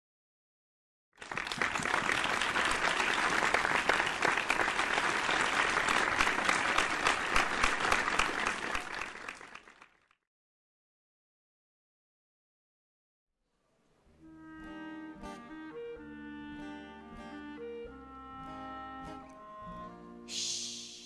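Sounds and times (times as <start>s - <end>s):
crowd applauding: 1.2s - 10.2s.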